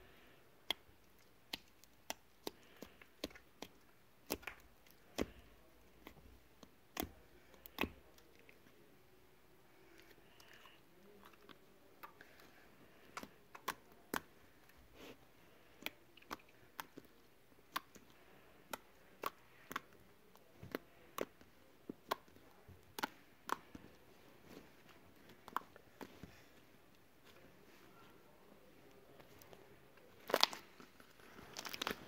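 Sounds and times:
slime clicking and popping: 0.6s - 5.4s, 6.0s - 8.4s, 13.1s - 14.3s, 15.8s - 21.4s, 22.0s - 23.8s.

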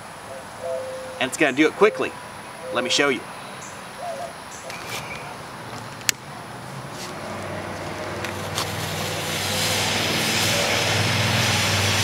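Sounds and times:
hiss with low rumble: 8.1s - 12.0s.

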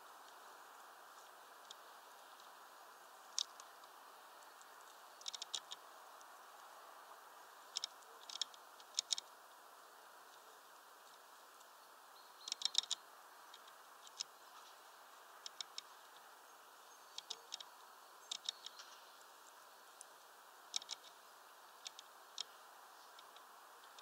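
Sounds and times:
faint steady hiss: 0.0s - 24.0s.

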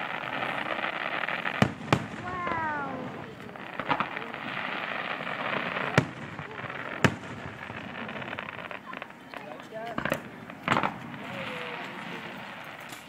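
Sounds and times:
firework shells bursting: 0.0s - 9.1s, 9.8s - 13.0s.

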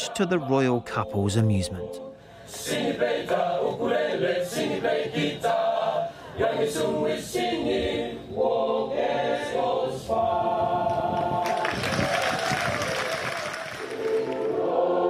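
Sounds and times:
boys' choir singing: 0.0s - 11.8s, 13.8s - 15.0s
applause: 11.2s - 14.5s.

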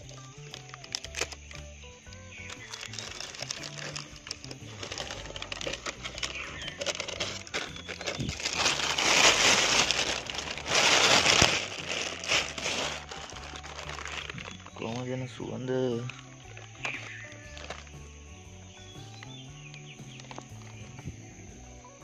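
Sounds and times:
plastic bag crinkling: 0.0s - 1.6s, 2.3s - 15.4s, 16.0s - 18.1s.

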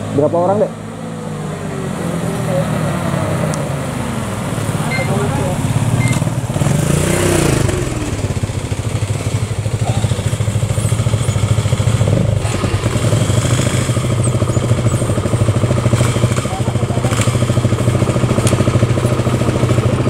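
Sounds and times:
motorcycle engine idling: 4.8s - 20.0s.

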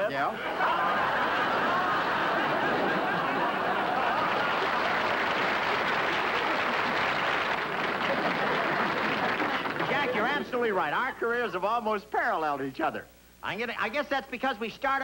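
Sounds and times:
audience laughing: 0.3s - 10.6s
audience clapping: 0.5s - 10.8s.

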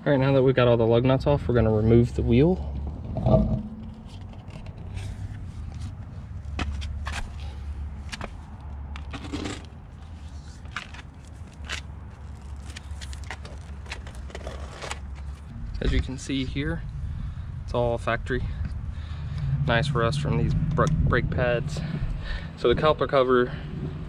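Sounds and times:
low rumble: 1.2s - 5.3s, 15.4s - 24.0s.

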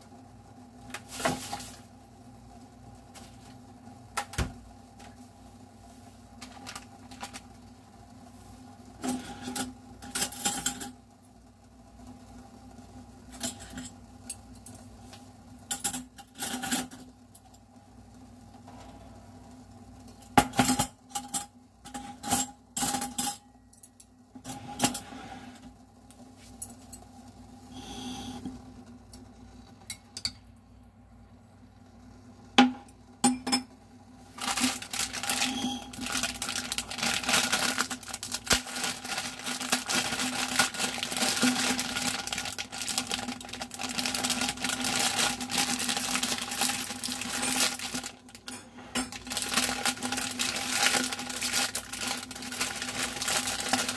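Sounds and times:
plastic packet crinkling: 6.4s - 7.6s, 34.3s - 48.5s, 49.1s - 53.9s.

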